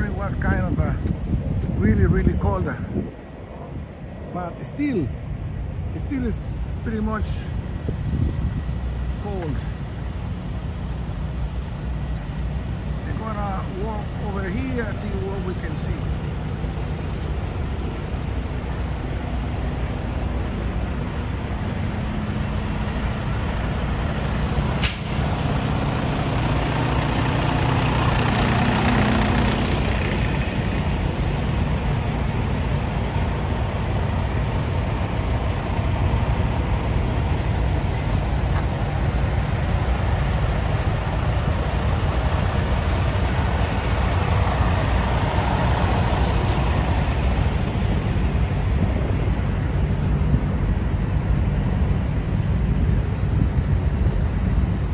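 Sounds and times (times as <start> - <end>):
trucks idling: 3.3 - 54.9
sharp click: 24.8 - 25.2
air hiss: 24.8 - 25.4.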